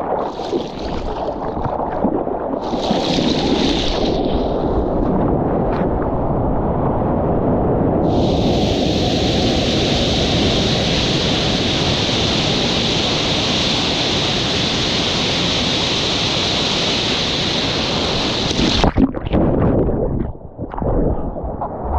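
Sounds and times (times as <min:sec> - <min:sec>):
surf water rushing: 0:00.0 - 0:06.7, 0:08.0 - 0:19.9
wind noise on microphone: 0:00.0 - 0:21.9.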